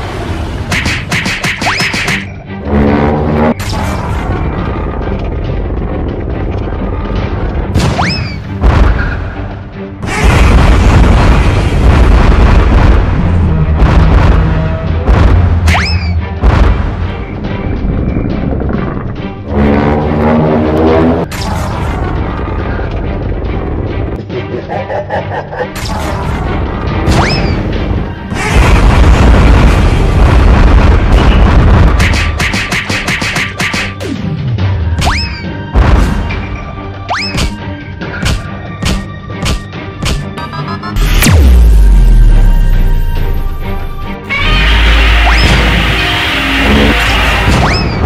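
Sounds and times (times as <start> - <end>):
background music: 0.0 - 48.0
energy beam and explosion booms: 10.0 - 17.3, 28.3 - 32.0.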